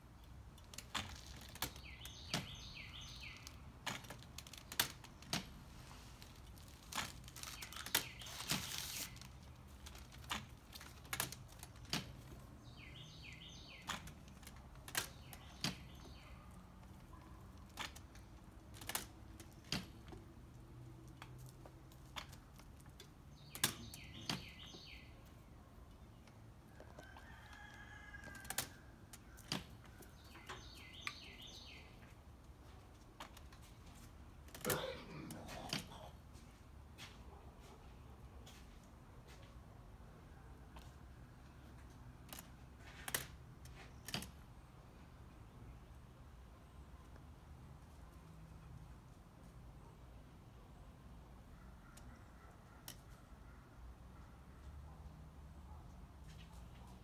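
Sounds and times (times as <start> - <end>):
songbird chirping: 0.0 - 49.5
rooster crowing: 26.8 - 28.8.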